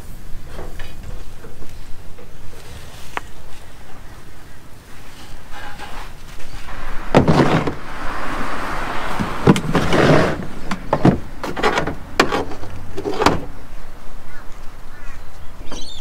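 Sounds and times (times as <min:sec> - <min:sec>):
box scraping on plastic liner: 0:09.6 - 0:13.4.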